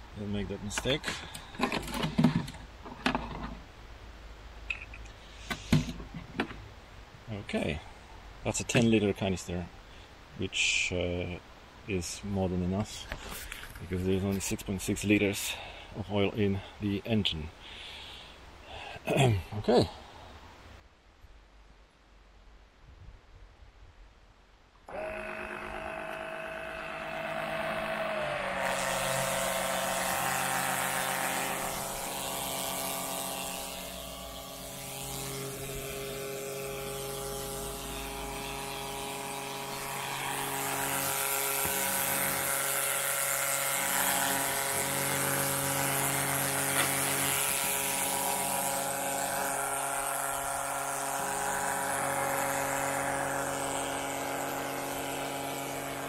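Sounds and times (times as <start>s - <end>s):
electric pump motor whine: 24.9s - 56.0s.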